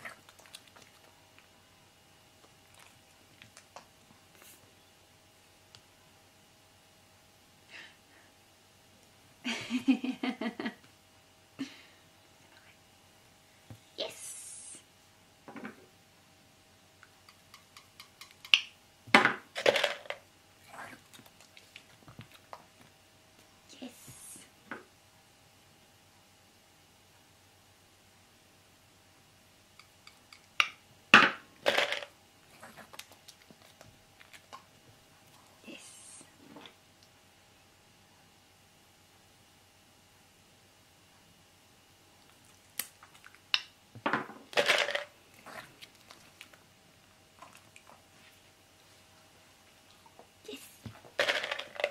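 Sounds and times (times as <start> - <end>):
crinkly rummaging in plastic tub: 44.6 - 45.1, 51.1 - 51.9.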